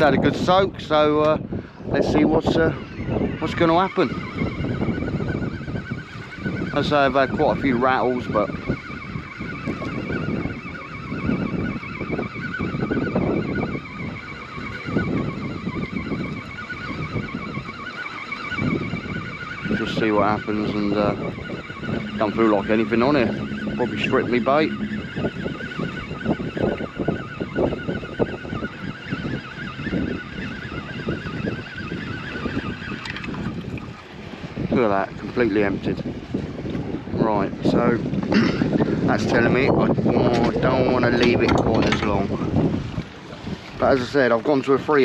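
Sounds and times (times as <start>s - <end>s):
wind and water rumble: 0.0s - 45.0s
fishing reel gears whining: 2.3s - 34.8s.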